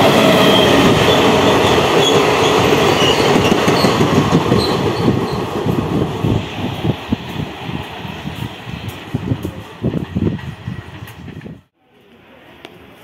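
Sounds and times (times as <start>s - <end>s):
train wheels rumbling and clattering: 0.0s - 11.7s
high wheel squeals: 0.2s - 5.4s.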